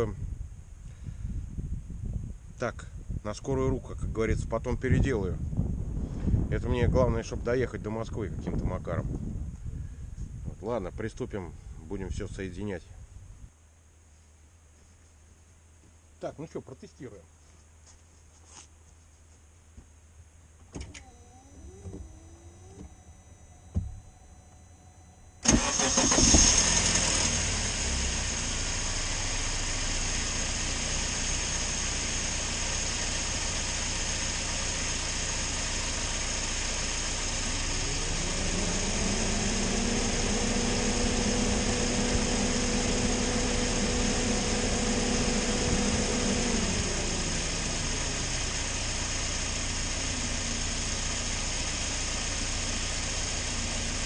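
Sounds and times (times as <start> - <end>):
engine starting and idling: 20.8 - 54.0
rising tone: 21.0 - 28.0, 37.4 - 48.8.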